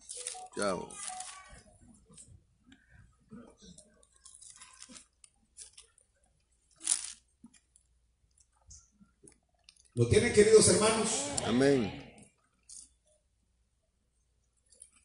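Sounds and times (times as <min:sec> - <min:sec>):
faint handling rustles: 0:00.0 - 0:07.8.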